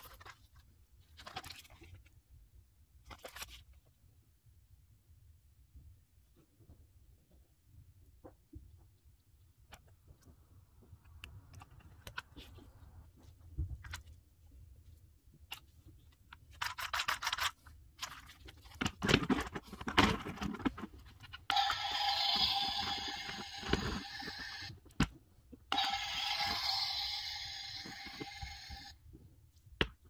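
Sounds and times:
plastic toy clicks and rustles: 0:16.5 - 0:24.8.

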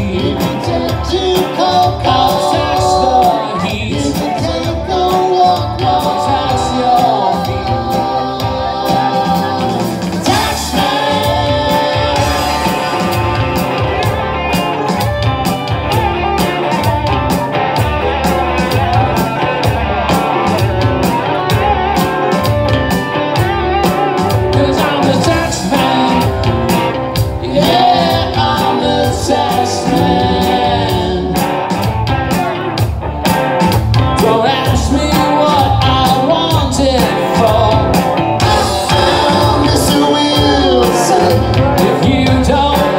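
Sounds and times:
lead and harmony vocals: 0:00.0 - 0:14.2, 0:24.2 - 0:31.7, 0:34.2 - 0:42.9
electric guitars: 0:00.0 - 0:42.9
steady drum beat: 0:00.0 - 0:42.9.

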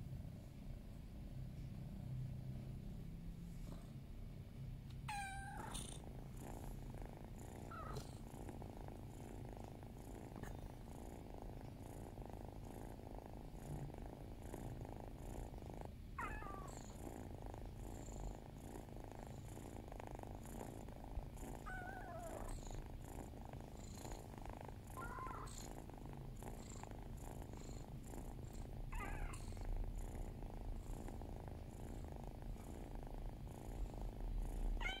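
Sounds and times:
cat purring: 0:00.0 - 0:35.0
cat meowing softly: 0:05.0 - 0:05.9, 0:16.2 - 0:16.8, 0:21.7 - 0:22.5, 0:25.0 - 0:25.5, 0:34.8 - 0:35.0.

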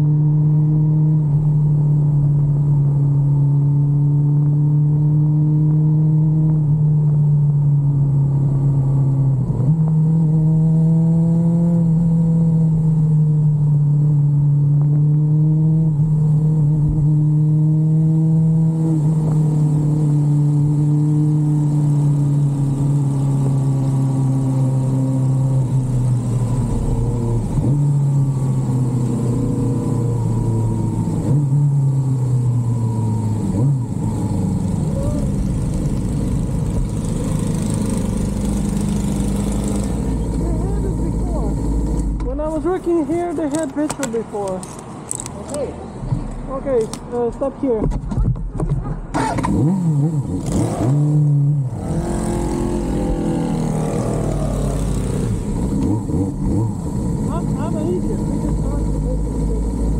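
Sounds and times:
motorcycle engine at low revs: 0:00.0 - 0:45.7, 0:46.6 - 0:59.9.

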